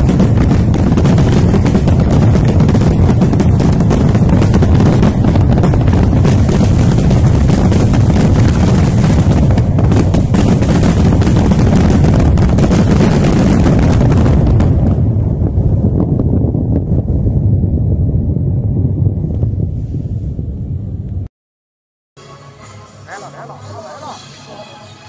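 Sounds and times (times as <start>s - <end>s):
fireworks crackling and banging: 0.0s - 17.4s
heavy rumble: 0.0s - 21.3s.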